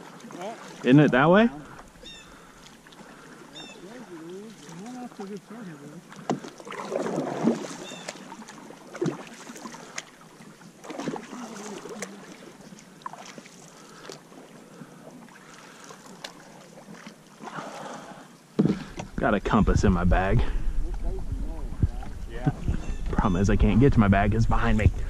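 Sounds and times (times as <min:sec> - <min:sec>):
paddle splashing in water: 0:00.0 - 0:19.2.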